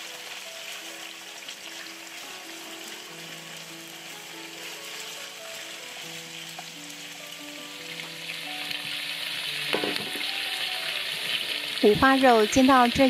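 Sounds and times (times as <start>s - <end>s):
meat sizzling in a pan: 0.0s - 13.0s
soft background music: 0.0s - 13.0s.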